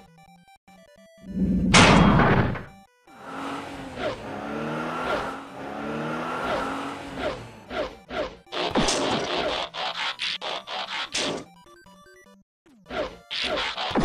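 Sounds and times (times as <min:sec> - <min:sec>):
car engine revving: 0:03.1 - 0:09.8.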